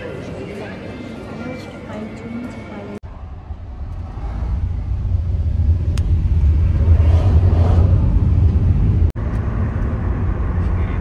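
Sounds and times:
vehicle rumbling in motion: 0:03.0 - 0:11.0.

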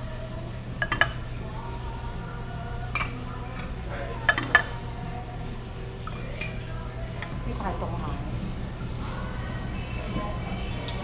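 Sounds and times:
low steady hum: 0:00.0 - 0:11.0
dishes and cutlery clinking: 0:00.8 - 0:01.3, 0:02.9 - 0:04.8, 0:06.0 - 0:07.4, 0:10.1 - 0:11.0.

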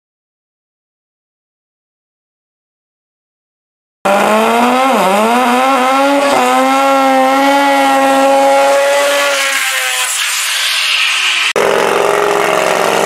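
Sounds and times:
drag racing engine at full throttle: 0:04.1 - 0:13.0.

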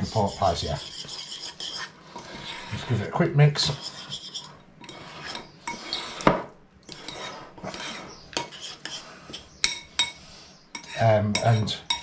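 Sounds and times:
fingers mixing wet food in bowl: 0:00.0 - 0:02.9, 0:06.8 - 0:10.1.

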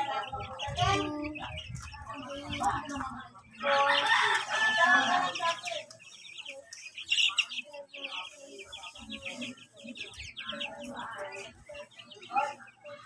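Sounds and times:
chicks peeping: 0:00.0 - 0:13.0
hen clucking: 0:00.0 - 0:13.0.

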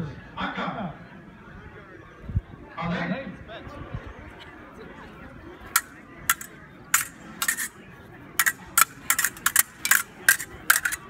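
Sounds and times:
sabres clashing: 0:05.8 - 0:07.8, 0:08.4 - 0:11.0.

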